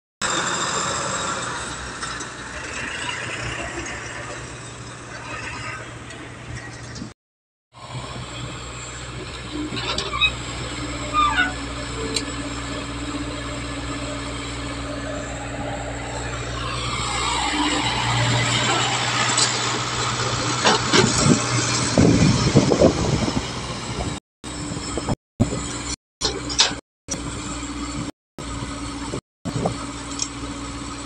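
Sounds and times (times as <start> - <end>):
excavator diesel engine running: 0.2 - 7.1, 7.8 - 31.0.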